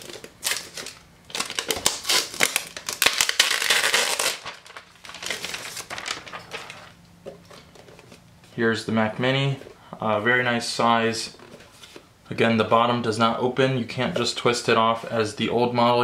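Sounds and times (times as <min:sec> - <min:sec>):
plastic wrap crinkling: 0:00.0 - 0:08.2.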